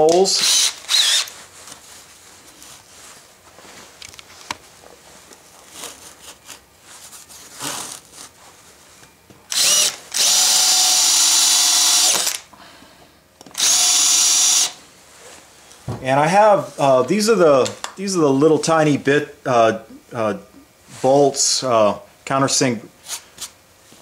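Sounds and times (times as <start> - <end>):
power drill whining: 0.0 - 1.3, 9.5 - 12.5, 13.5 - 14.8.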